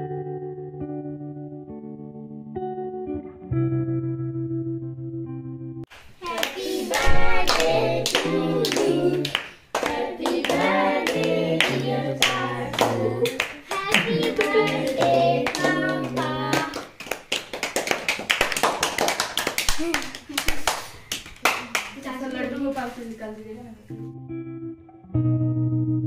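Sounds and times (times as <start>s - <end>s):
people clapping: 5.9s - 22.7s
small group singing together: 6.2s - 17.0s.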